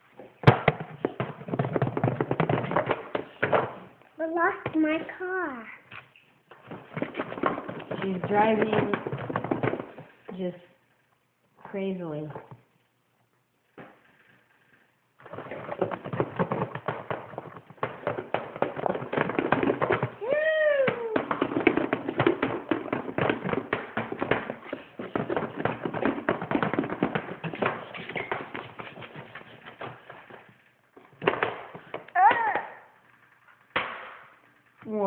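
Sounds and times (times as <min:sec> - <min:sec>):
plastic bowl tapping and rattling: 0:00.4 - 0:03.8, 0:06.5 - 0:10.1, 0:15.2 - 0:20.2, 0:20.8 - 0:29.0
child squealing: 0:20.2 - 0:21.3, 0:32.2 - 0:32.8.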